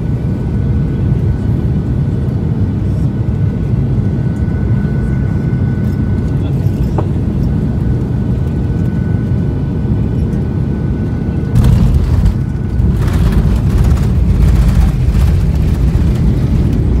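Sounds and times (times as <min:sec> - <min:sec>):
jet engine drone: 0:00.0 - 0:17.0
runway rumble and rush: 0:11.4 - 0:17.0.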